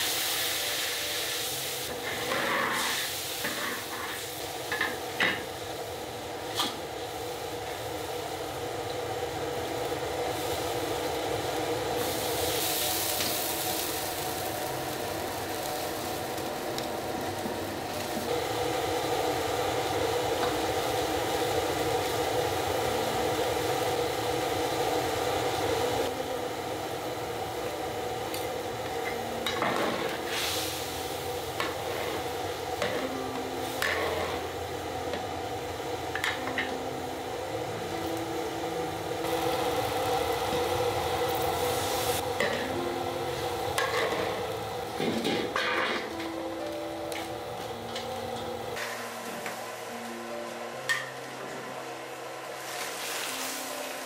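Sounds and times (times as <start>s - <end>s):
loud hissing of steam: 0.0s - 5.4s, 9.9s - 16.2s, 29.7s - 32.4s, 39.2s - 45.8s
oil sizzling and bubbling: 0.0s - 50.1s, 50.9s - 54.0s.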